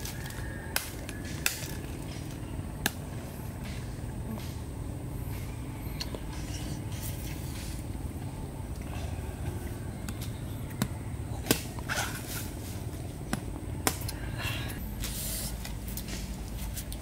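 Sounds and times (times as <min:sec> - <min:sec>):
steady low rumble: 0:00.0 - 0:17.0
machete chopping coconut: 0:00.1 - 0:02.0, 0:10.1 - 0:12.1, 0:13.3 - 0:14.2.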